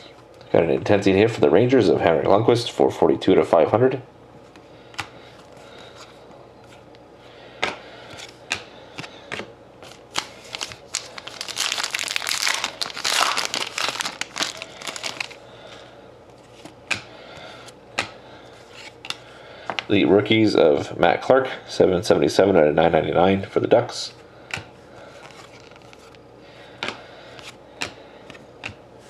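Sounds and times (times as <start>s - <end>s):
plastic crinkling: 9.8s - 15.4s, 25.2s - 26.2s.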